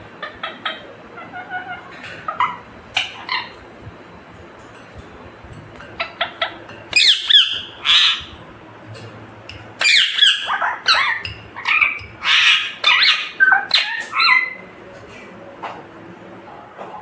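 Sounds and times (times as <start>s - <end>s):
parakeet squawking and chirping: 0.2s - 3.6s, 6.0s - 8.4s, 9.8s - 14.6s.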